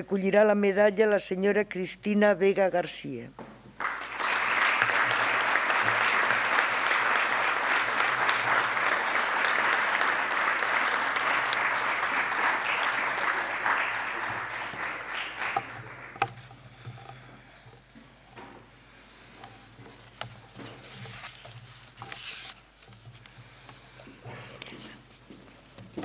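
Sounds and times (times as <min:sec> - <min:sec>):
audience applauding: 0:03.8 - 0:16.4.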